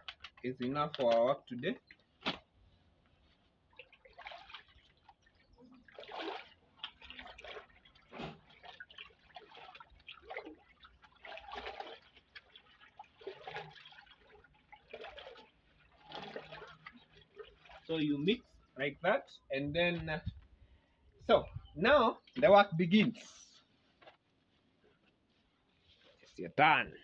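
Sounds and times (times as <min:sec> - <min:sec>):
water sloshing and splashing: 0:00.0 - 0:18.8.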